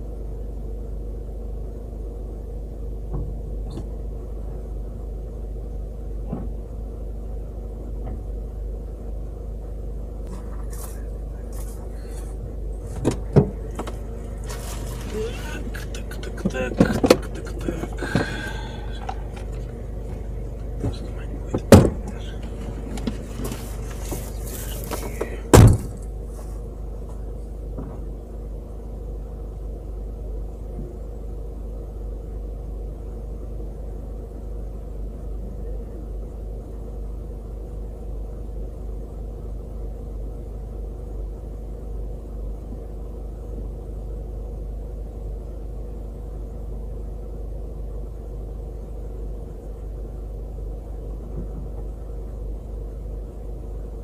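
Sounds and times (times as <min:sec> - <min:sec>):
vehicle engine hum: 0:00.0 - 0:54.0
loud thump: 0:20.8 - 0:22.1, 0:25.5 - 0:26.0.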